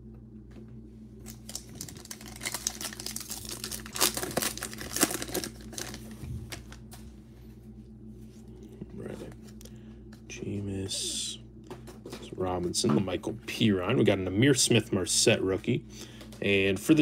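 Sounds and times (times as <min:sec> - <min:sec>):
wrapper crinkling and tearing: 0:01.2 - 0:06.9.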